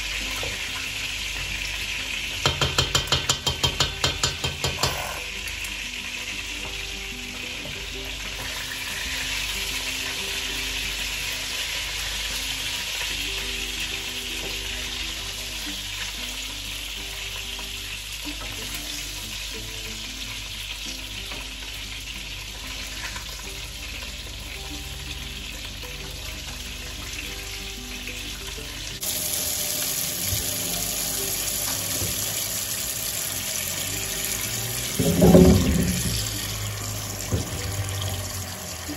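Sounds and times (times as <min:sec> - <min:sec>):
meatballs sizzling in oil: 0:00.0 - 0:38.9
tap running into steel sink: 0:34.9 - 0:36.4, 0:37.2 - 0:38.0.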